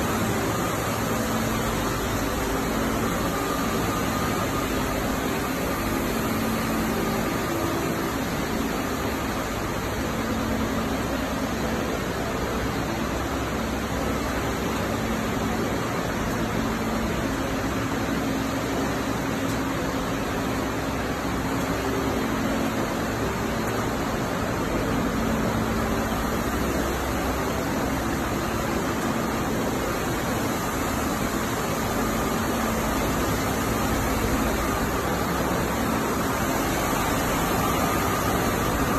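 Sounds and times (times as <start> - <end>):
machinery hiss and hum: 0.0 - 38.9.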